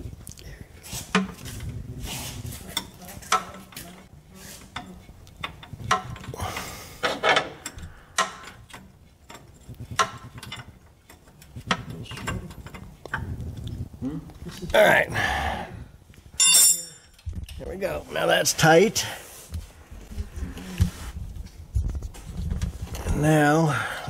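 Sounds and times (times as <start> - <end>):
wrench clicking and scraping on metal: 7.0 - 13.3, 16.4 - 17.3.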